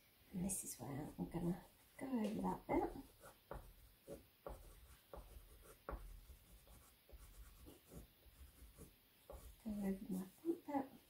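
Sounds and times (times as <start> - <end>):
oil pastel scratching on paper: 2.5 - 10.7.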